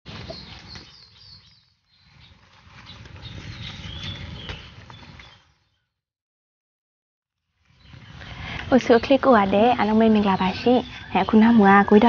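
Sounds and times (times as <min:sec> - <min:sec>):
leaves rustling: 0:00.1 - 0:05.6.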